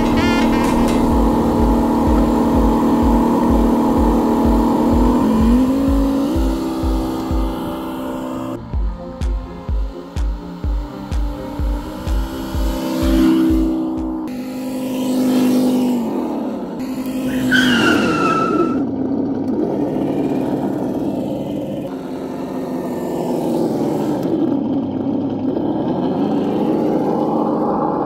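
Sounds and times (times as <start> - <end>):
simulated engine rumble: 0.0 - 28.0
short falling squeal: 17.2 - 18.9.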